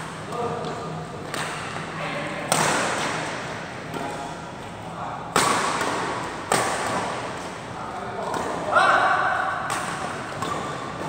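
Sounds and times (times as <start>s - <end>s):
racket hitting shuttlecock: 0.0s - 4.3s, 5.3s - 7.6s, 8.2s - 11.0s.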